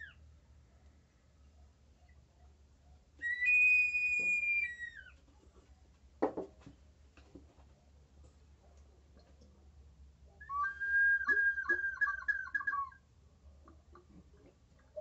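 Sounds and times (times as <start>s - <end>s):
water whistle bird-like whistling: 3.2s - 5.0s, 10.4s - 13.0s.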